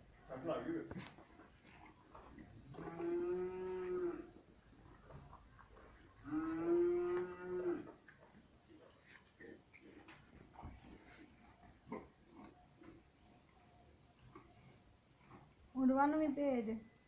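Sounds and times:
cattle mooing: 2.8 - 4.3, 6.2 - 7.9.

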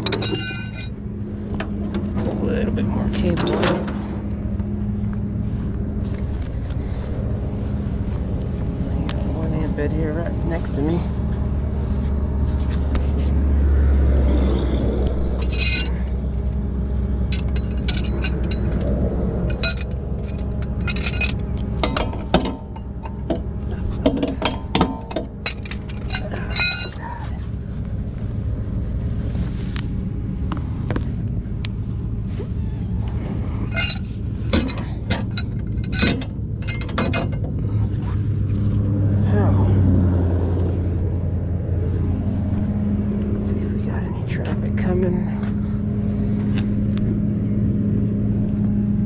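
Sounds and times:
metallic tow chain clinks: 0.0 - 1.2, 15.2 - 27.5, 33.6 - 38.9
truck engine idling: 0.0 - 49.0.

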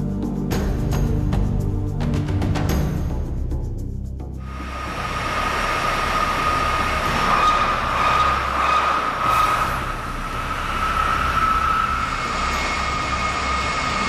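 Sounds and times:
air compressor rushing: 4.4 - 14.0
high whine: 4.4 - 14.0.

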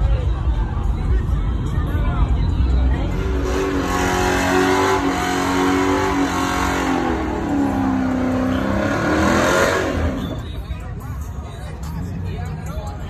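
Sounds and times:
car engine revving: 3.0 - 10.6.

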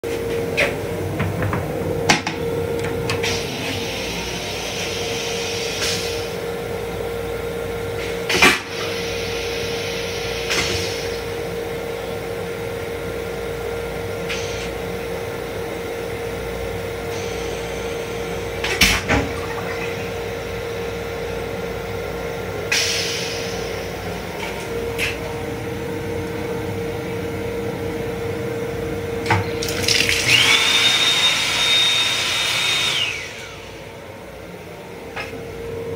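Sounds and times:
faucet running into basin: 29.6 - 31.0.

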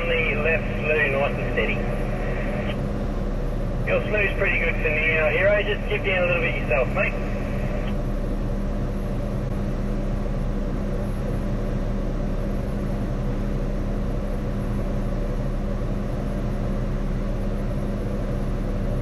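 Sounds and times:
crane diesel engine droning: 0.0 - 19.0.

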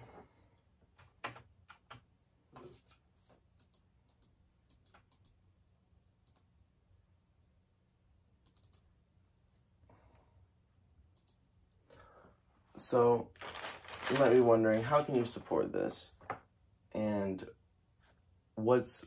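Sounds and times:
faint mouse and keyboard clicks: 1.0 - 5.4, 6.2 - 6.5, 8.4 - 8.9.

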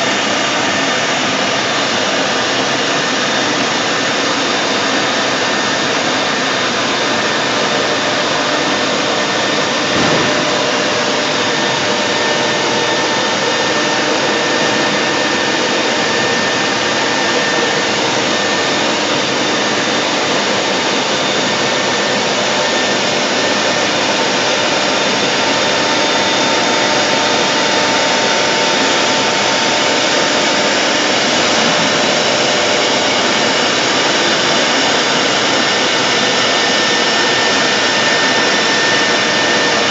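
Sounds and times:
router spindle whining: 0.0 - 39.9
brief knock: 9.9 - 10.7.

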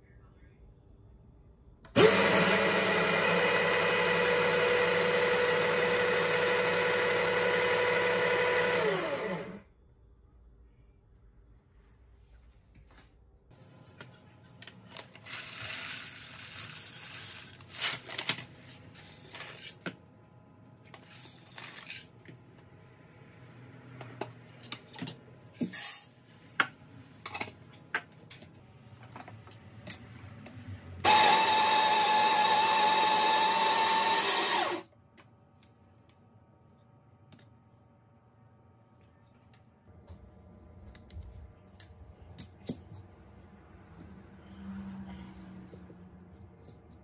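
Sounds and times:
coffee grinder whine: 2.0 - 9.6, 31.0 - 34.9.

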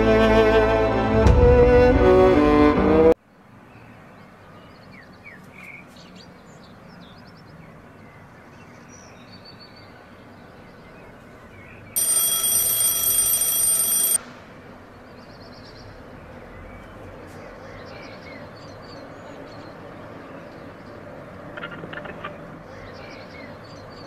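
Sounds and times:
faint bird chirps: 11.6 - 14.2
electronic alarm ringing: 12.0 - 14.2.

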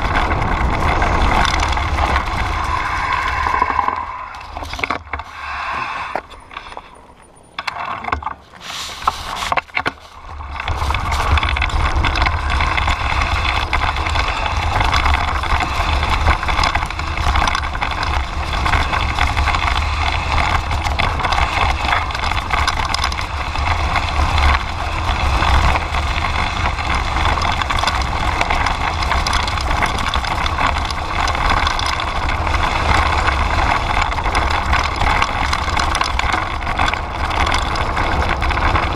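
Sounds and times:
wind buffeting microphone: 0.0 - 5.8
bike tyres on dirt: 0.0 - 38.9.

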